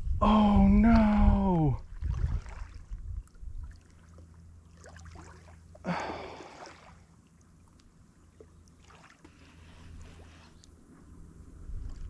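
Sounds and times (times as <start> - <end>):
wind on microphone: 0.0 - 3.8, 11.0 - 12.0
waves lapping on gravel: 1.9 - 3.0, 3.7 - 7.1, 8.8 - 10.8
breathy rush of noise: 9.3 - 11.3.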